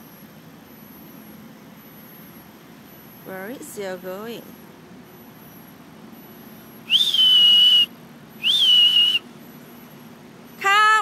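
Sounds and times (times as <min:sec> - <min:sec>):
dog whistle blasts: 0:06.9 - 0:09.2.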